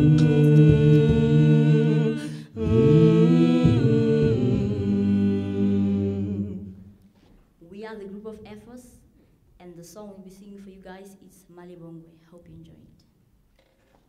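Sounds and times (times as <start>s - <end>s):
a cappella group singing chords: 0.0s - 7.1s.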